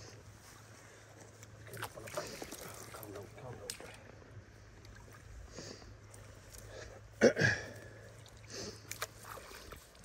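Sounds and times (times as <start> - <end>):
man breathing hard through nose: 5.4 - 9.8.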